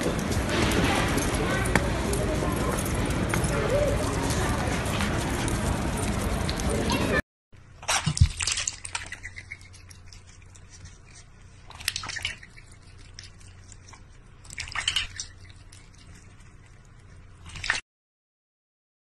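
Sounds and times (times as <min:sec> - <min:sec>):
water splashing in metal bowl: 0:07.8 - 0:10.2, 0:11.7 - 0:13.3, 0:14.4 - 0:16.0, 0:17.4 - 0:17.8.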